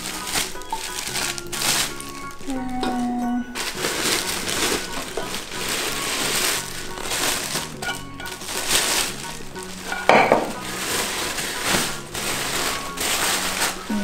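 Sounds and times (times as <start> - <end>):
plastic wrap and paper rustling: 0.0 - 14.0
pot knocking: 9.6 - 10.8.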